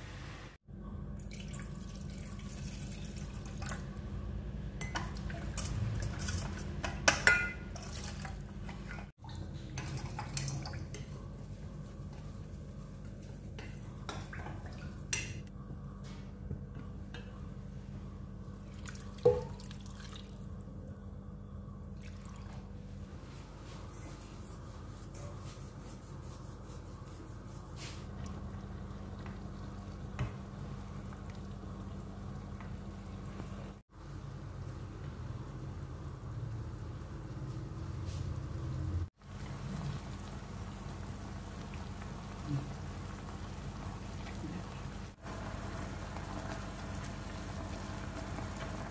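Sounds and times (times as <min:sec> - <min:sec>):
steady low hum: 0:10.9 - 0:48.9
sauce bubbling in a pan: 0:39.1 - 0:48.9.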